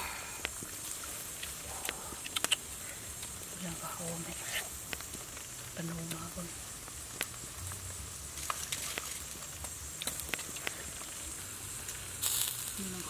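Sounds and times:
charcoal embers crackling: 0.0 - 13.0
sharp pops: 0.4 - 3.5, 4.3 - 6.3, 6.9 - 7.8
short hiss: 8.4 - 13.0.

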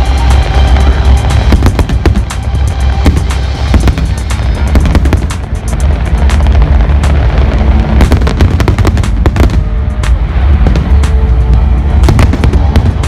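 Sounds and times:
deep rumble: 0.0 - 13.0
fireworks bangs and crackles: 0.0 - 13.0
loud music: 0.0 - 13.0.

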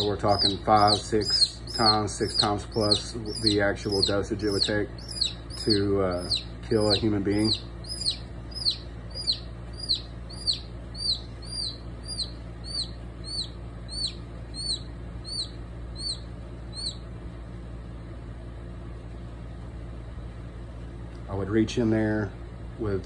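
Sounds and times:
chick peeping: 0.0 - 17.0.

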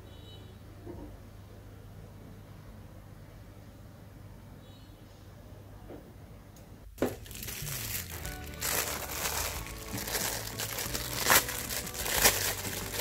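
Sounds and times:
plastic wrapping crinkling: 7.0 - 13.0.

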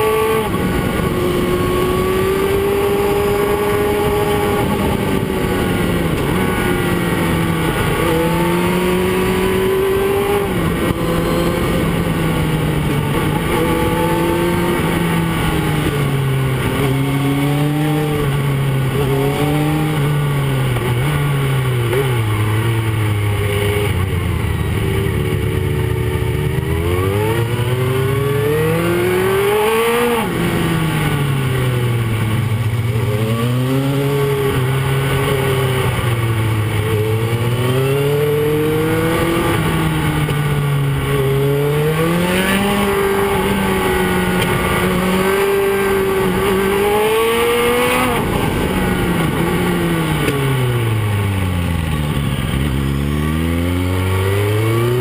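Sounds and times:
motorcycle engine revving: 0.0 - 55.0
wind and road noise: 0.0 - 55.0.

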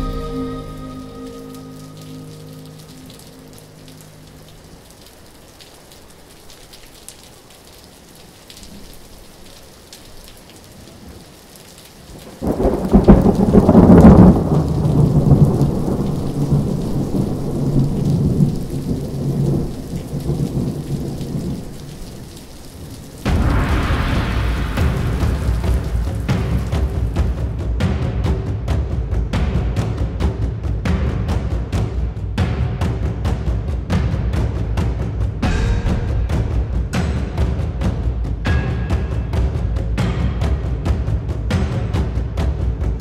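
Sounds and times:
rain-like hiss: 0.0 - 43.0
deep thunder rumble: 12.2 - 27.4, 34.2 - 39.4.

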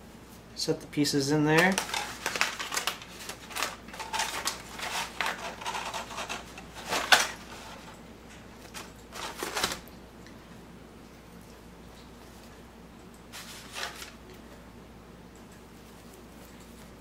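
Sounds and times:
aluminium foil crinkling: 1.4 - 8.0, 8.6 - 10.0, 13.3 - 14.6
bread crust crackling: 1.4 - 9.9.

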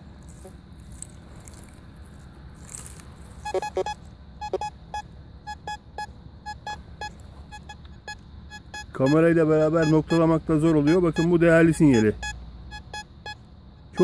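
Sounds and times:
metal detector beeps: 3.4 - 14.0.

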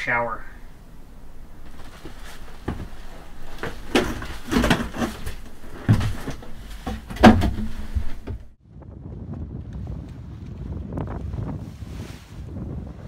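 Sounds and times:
rustling: 0.6 - 8.6
handling knocks and thumps: 1.2 - 8.6.

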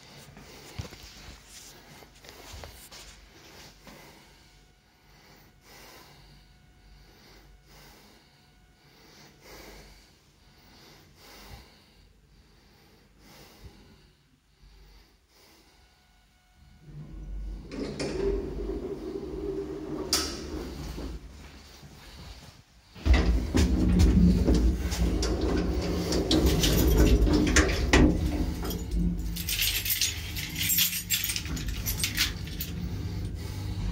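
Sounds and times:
lift low hum: 3.3 - 33.9
sliding doors opening: 16.8 - 21.4, 23.0 - 33.9.

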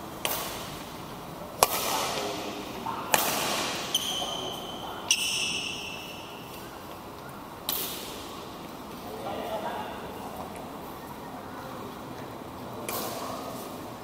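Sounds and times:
racket striking shuttlecock: 0.2 - 0.9, 1.6 - 2.4, 3.1 - 6.0, 7.6 - 8.3, 12.8 - 13.4
high squeaks: 3.9 - 6.8.

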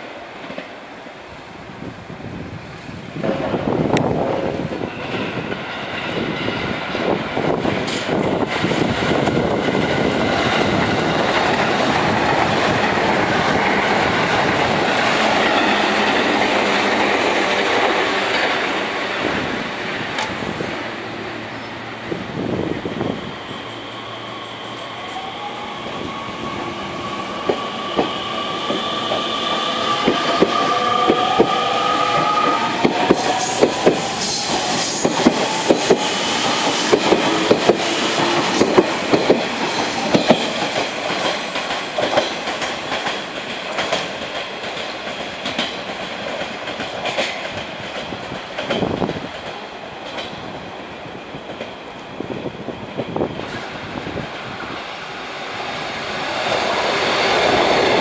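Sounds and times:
wheels clacking over rail joints: 27.4 - 50.5.

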